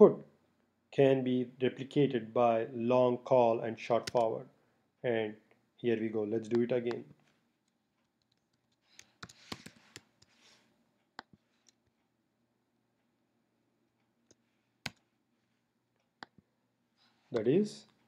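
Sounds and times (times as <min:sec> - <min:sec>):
keyboard typing: 0:04.0 - 0:04.2, 0:08.1 - 0:10.4, 0:14.3 - 0:15.1.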